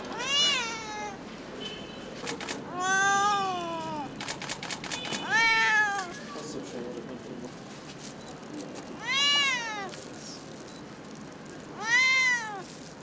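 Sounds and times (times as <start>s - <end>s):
cat meowing: 0.0s - 1.2s, 2.7s - 4.1s, 5.2s - 6.2s, 9.0s - 10.0s, 11.7s - 12.7s.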